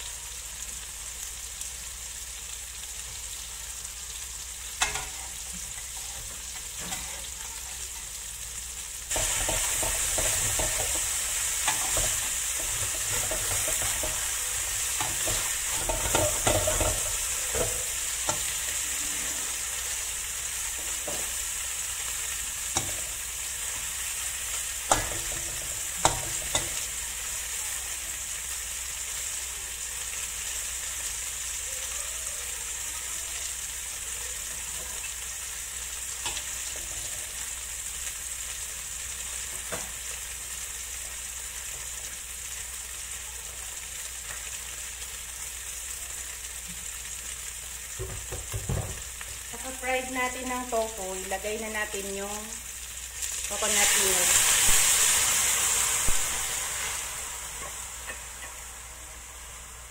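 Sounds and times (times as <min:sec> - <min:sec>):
tofu sizzling in hot oil: 0:00.0 - 0:59.9
spatula scraping and knocking pan: 0:09.1 - 0:18.6.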